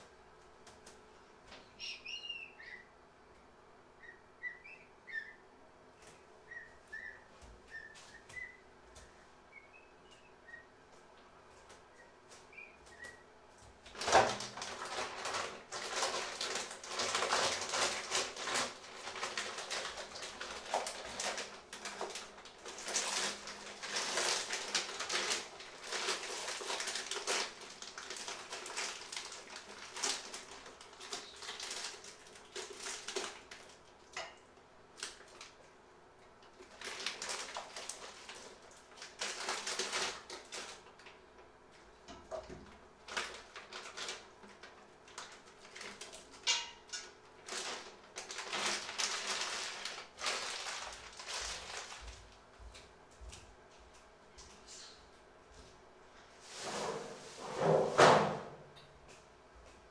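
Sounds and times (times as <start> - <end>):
plastic bag crinkling: 13.9 - 34.2, 36.5 - 41.2, 43.0 - 52.4.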